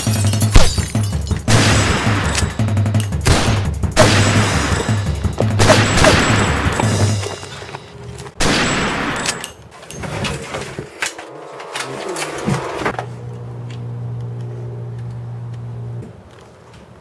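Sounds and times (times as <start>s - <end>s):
action music with bass beat: 0.0s - 7.5s
rapid gunshots: 0.3s - 6.8s.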